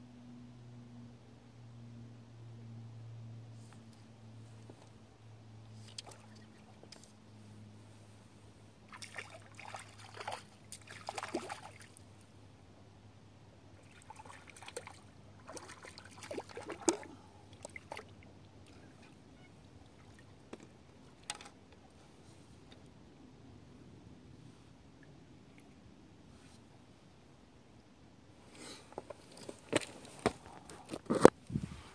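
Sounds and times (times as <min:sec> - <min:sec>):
fish splashing at water surface: 0:08.9 - 0:11.9.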